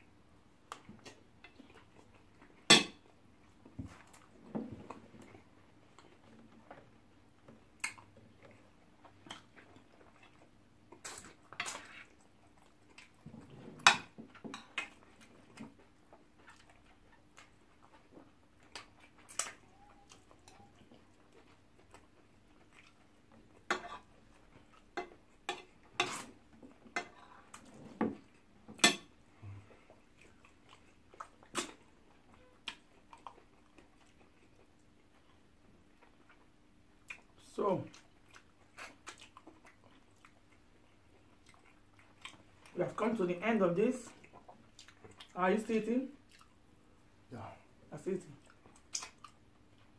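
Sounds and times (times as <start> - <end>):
fork clinking on ceramic plates: 2.7 - 3.0, 28.8 - 29.1
wet chewing and lip-smacking: 7.7 - 13.5, 14.2 - 25.0, 29.7 - 42.8, 44.1 - 45.4, 46.2 - 46.6, 48.4 - 49.9.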